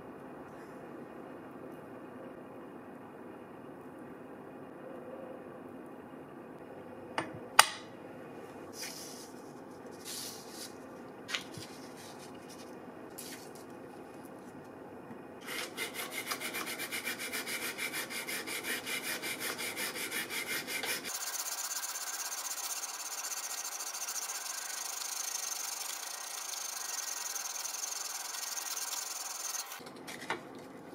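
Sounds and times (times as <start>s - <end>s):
sandpaper scratching metal: 15.4s - 29.8s.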